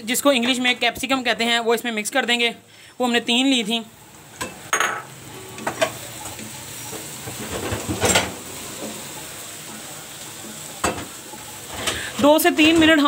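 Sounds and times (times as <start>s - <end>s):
vegetables sizzling in oil: 2.6s - 13.0s.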